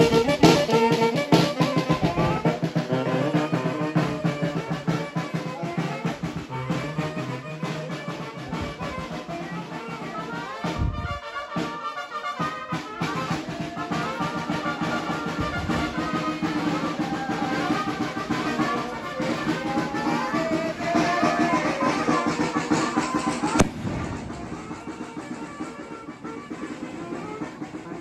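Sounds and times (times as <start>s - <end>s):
brass band playing: 0.0s - 28.0s
sharp crack: 23.6s - 24.8s.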